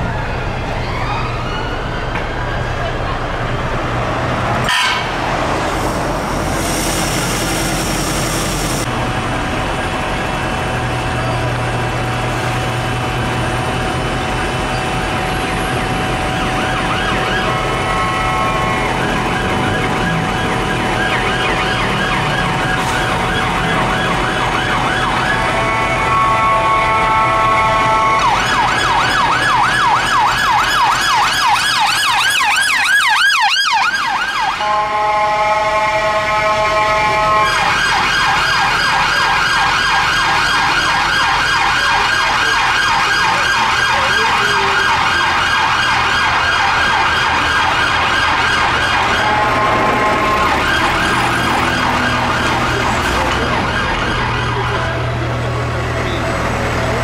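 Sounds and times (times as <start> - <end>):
police sirens wailing and yelping: 0.0 - 3.6, 14.5 - 57.0
harsh horn tone: 4.6 - 8.9, 17.4 - 19.6, 25.3 - 28.5, 34.6 - 37.8, 48.9 - 53.7.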